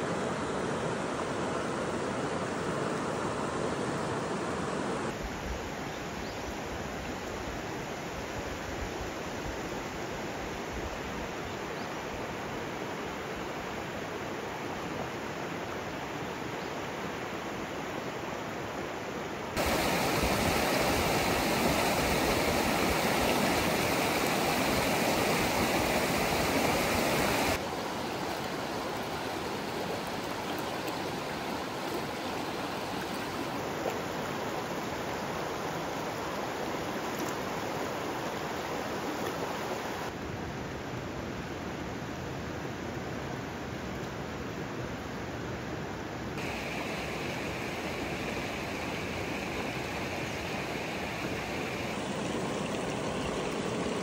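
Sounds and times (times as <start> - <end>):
stream flowing over stones: 19.6 - 40.2, 46.4 - 54.0.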